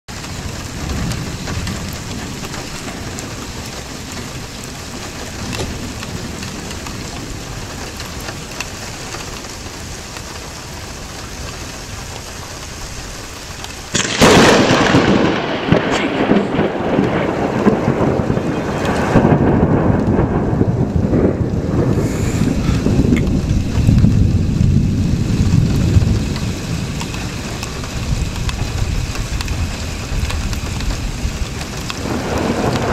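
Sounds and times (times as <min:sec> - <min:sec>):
heavy rain: 0:00.1 - 0:32.9
loud thunderclap: 0:13.9 - 0:32.9
rolling thunder: 0:13.9 - 0:32.9.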